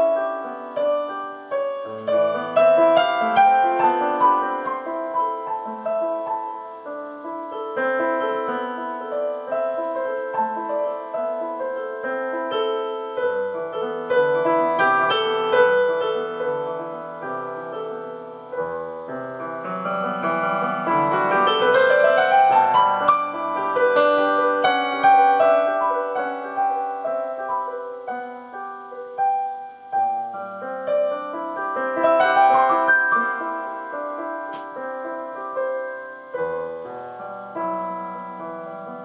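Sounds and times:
piano music: 0.0 - 39.0.

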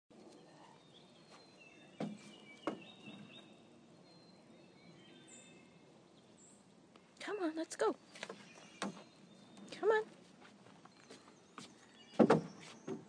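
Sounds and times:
sharp knocks: 12.2 - 13.0.

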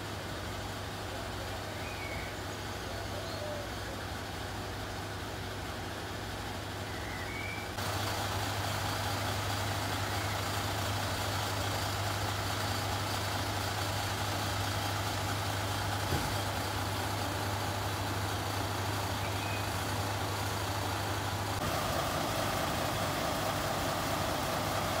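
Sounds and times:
diesel engine idling: 0.0 - 25.0.

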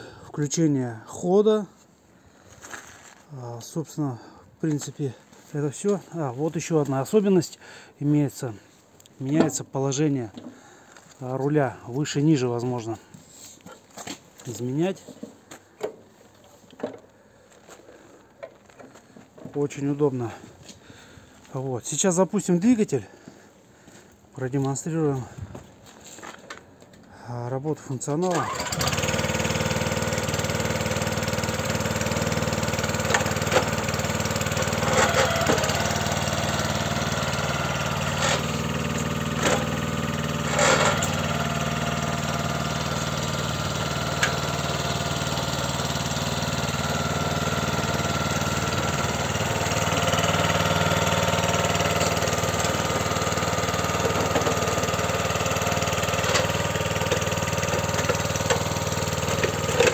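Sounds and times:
cultivator petrol engine running: 28.3 - 59.9
control clicks and clunks: 33.0 - 33.8, 44.2 - 44.5, 56.1 - 59.9.

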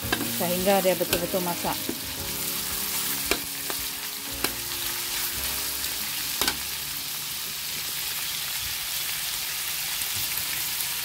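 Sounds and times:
food sizzling in pan: 0.0 - 11.0
utensil knocking against pan: 3.2 - 3.8.

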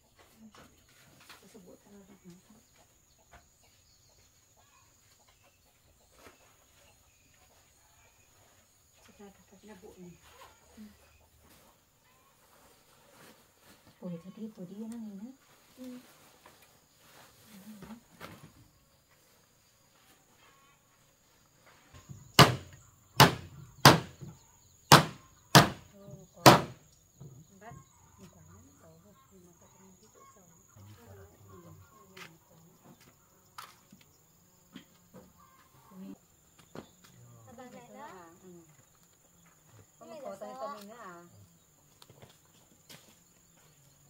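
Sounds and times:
faint chicken calls: 0.0 - 26.4, 27.1 - 44.0
sharp hammering blows: 22.4 - 24.3, 24.9 - 26.8.

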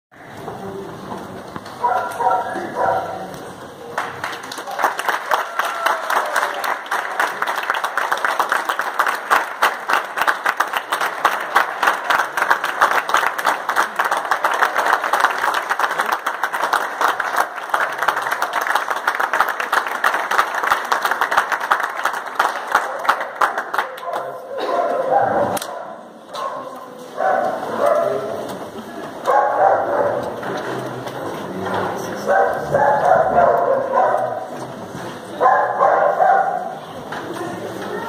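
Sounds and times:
audience applauding: 3.9 - 24.6.

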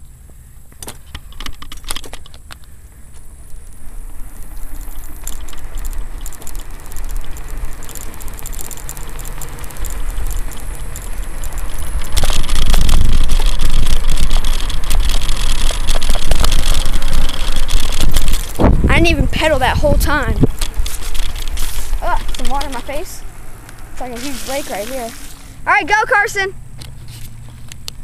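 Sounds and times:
bicycle tyre rumble: 0.0 - 28.0
bicycle clicks and rattles: 0.7 - 26.0, 26.7 - 28.0
wind rushing over microphone: 3.3 - 25.7.

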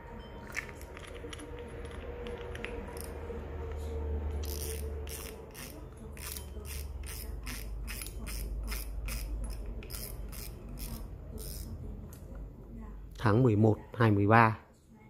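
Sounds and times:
fishing reel ticking: 4.4 - 11.7.

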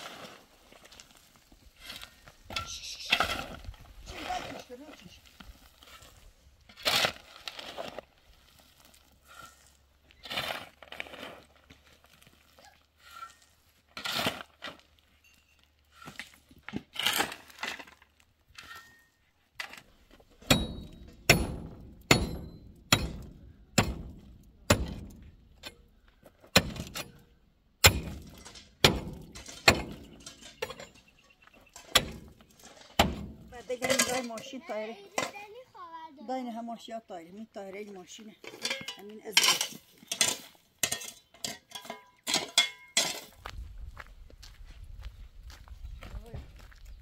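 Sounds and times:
knocks and scrapes: 16.0 - 35.6.

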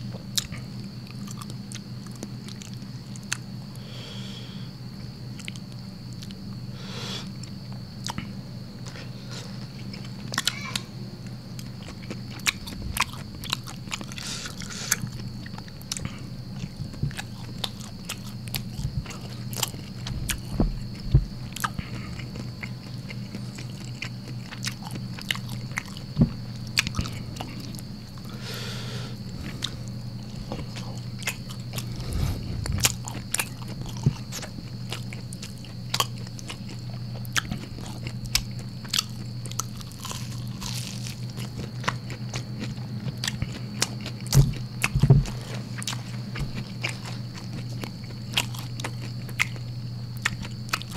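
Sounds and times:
faint high whine: 0.0 - 50.9
chewing with wet mouth clicks: 0.3 - 3.5, 5.4 - 6.4, 11.5 - 26.0, 30.4 - 31.9, 32.7 - 49.6, 50.2 - 50.9
low hum: 10.9 - 35.0.

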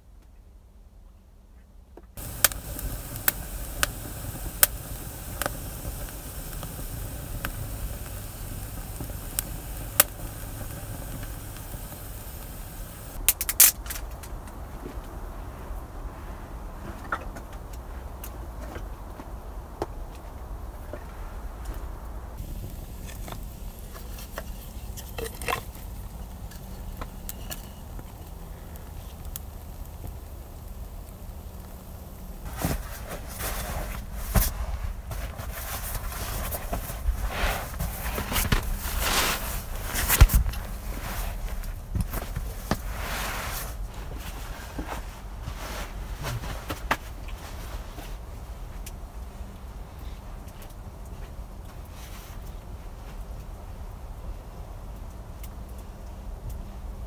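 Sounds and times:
steady low rumble: 2.2 - 13.3, 19.4 - 46.5
fire hissing: 2.2 - 13.7, 21.0 - 46.2
fire crackling and popping: 2.2 - 14.7, 19.6 - 54.0, 54.7 - 57.0
snaps and knocks of fire tending: 2.2 - 15.1, 19.8 - 53.6, 54.8 - 56.7.

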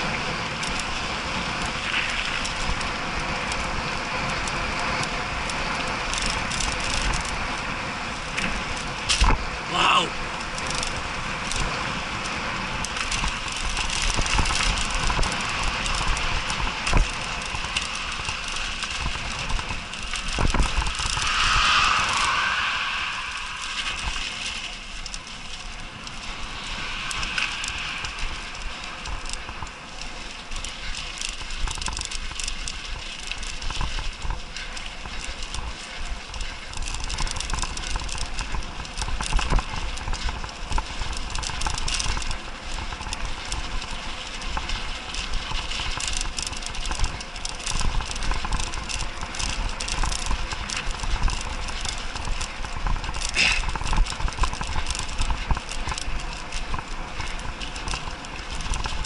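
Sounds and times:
bike clattering over ruts: 0.0 - 21.2, 24.0 - 59.0
low rumble: 8.6 - 32.2.

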